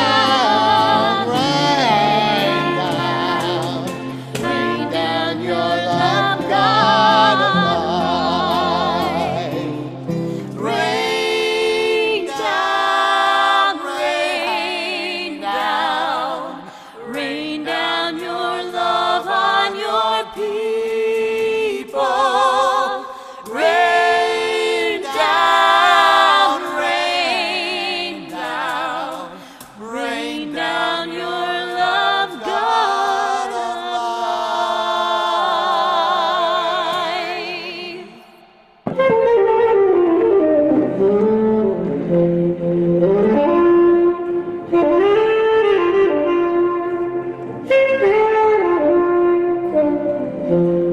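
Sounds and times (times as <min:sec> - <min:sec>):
woman singing a hymn: 0:00.0 - 0:09.6, 0:25.0 - 0:34.0
acoustic guitar: 0:00.0 - 0:13.7.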